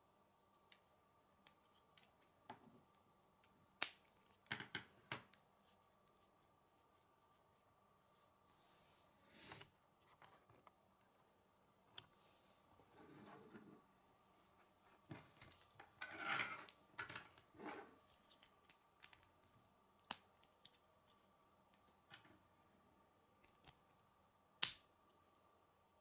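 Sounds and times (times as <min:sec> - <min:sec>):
plastic pieces snapping together: 0:24.6 - 0:24.8.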